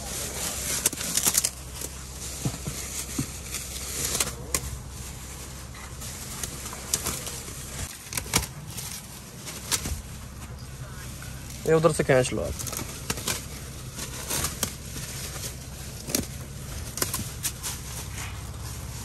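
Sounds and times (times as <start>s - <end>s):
plastic film crinkling: 0.0s - 19.0s.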